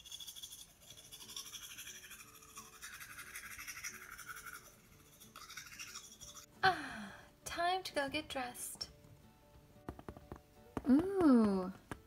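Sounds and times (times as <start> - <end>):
toothbrush scrubbing: 0.0 - 6.5
faint background music: 0.0 - 12.0.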